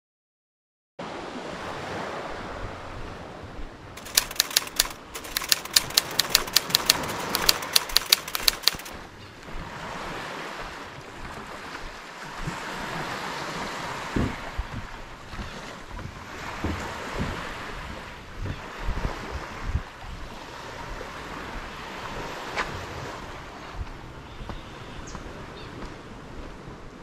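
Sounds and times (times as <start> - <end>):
sharp irregular clicks: 4.0 - 8.9.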